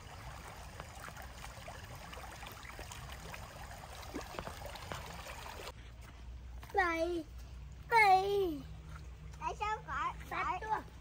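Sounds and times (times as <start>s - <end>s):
feet splashing through water: 0.0s - 5.7s
stream running over pebbles: 0.0s - 5.8s.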